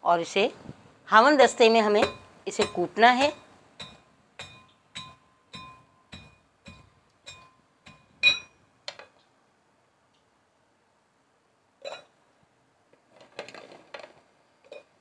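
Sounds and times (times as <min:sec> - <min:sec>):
metal pestle pounding in mortar: 0:02.0 - 0:08.5.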